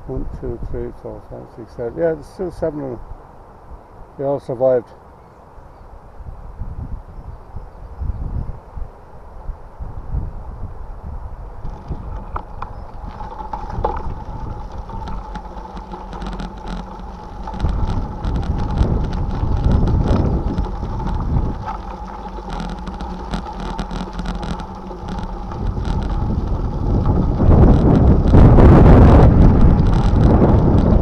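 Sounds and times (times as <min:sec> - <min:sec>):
wind buffeting microphone: 0:00.0 - 0:03.2, 0:06.1 - 0:31.0
bicycle tyre noise: 0:11.4 - 0:31.0
small rattles: 0:11.6 - 0:31.0.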